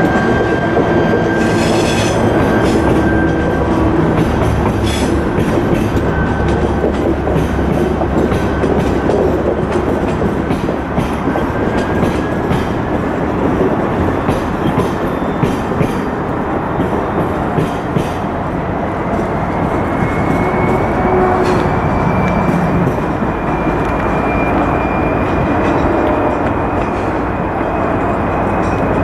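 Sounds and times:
faint high wheel squeal: 0:00.0 - 0:06.9, 0:14.0 - 0:16.0, 0:19.5 - 0:29.0
train wheels rumbling on track: 0:00.0 - 0:29.0.

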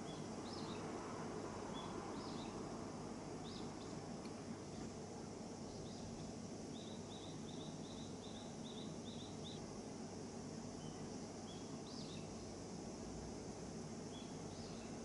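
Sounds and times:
small bird chirping: 0:00.0 - 0:00.9, 0:01.7 - 0:02.6, 0:03.4 - 0:04.0, 0:05.6 - 0:09.6, 0:10.7 - 0:12.6, 0:14.1 - 0:15.0
low background noise: 0:00.0 - 0:15.0.

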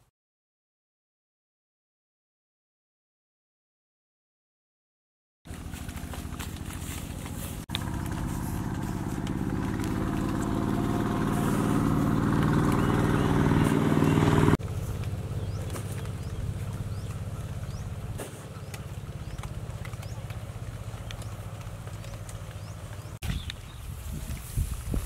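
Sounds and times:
low hum: 0:05.5 - 0:23.0
small engine running: 0:05.5 - 0:23.2.

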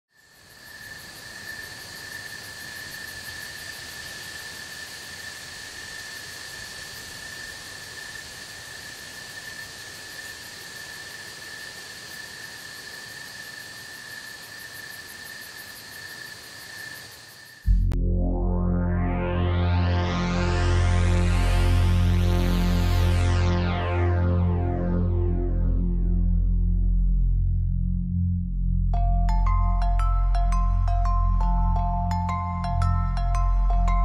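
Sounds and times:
insect chorus trilling: 0:00.2 - 0:17.7.

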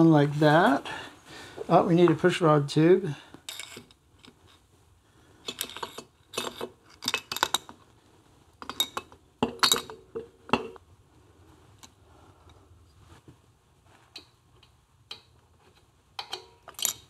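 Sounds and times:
metal parts clinking: 0:03.5 - 0:04.3, 0:05.4 - 0:07.7, 0:16.2 - 0:17.0.

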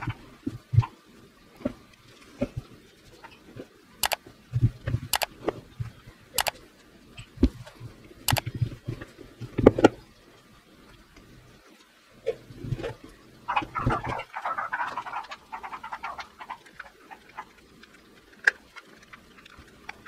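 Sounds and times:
plastic clicks: 0:05.1 - 0:05.3.

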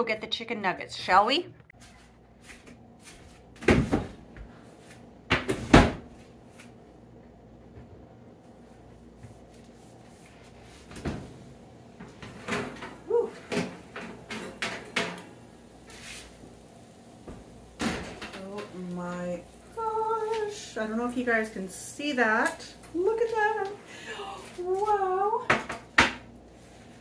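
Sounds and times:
oven door clunks and rattles: 0:17.8 - 0:18.4.

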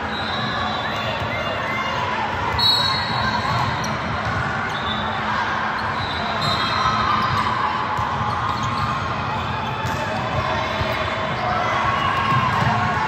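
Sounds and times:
murmur of crowd voices: 0:00.0 - 0:13.0.

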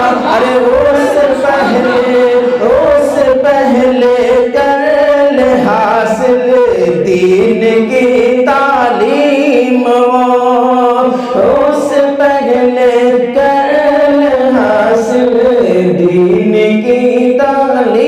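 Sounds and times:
man chanting into a microphone: 0:00.0 - 0:18.0.

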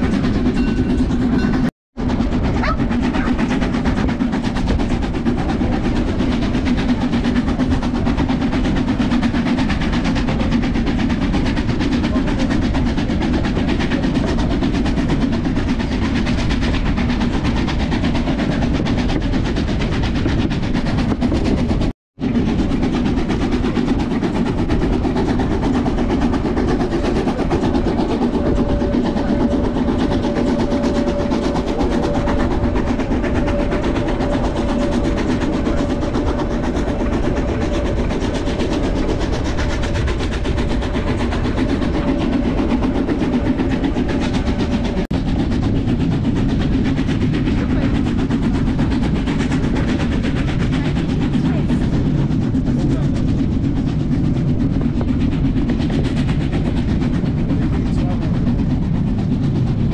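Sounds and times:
train wheels rumbling on track: 0:00.0 - 0:59.9.

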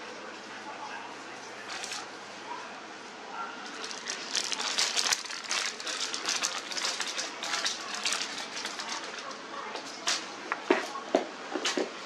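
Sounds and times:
paper receipt rustling: 0:01.6 - 0:02.1, 0:03.7 - 0:10.3.

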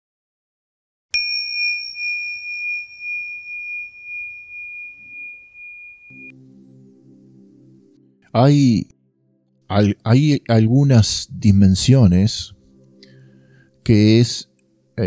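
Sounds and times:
small bell ringing: 0:01.2 - 0:06.3
faint low drone: 0:03.9 - 0:13.9.

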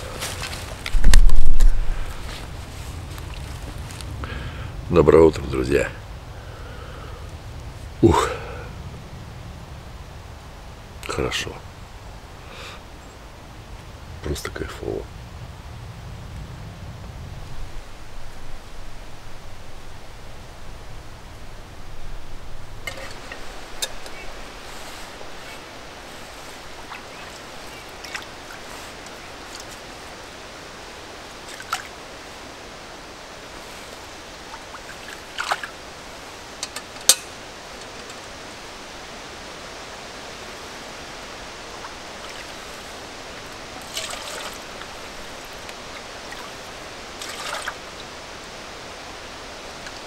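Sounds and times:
stream trickling: 0:00.0 - 0:04.0, 0:17.5 - 0:50.0.

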